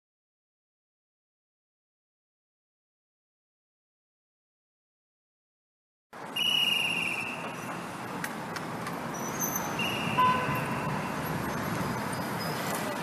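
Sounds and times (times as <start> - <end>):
city street traffic: 6.1 - 13.0.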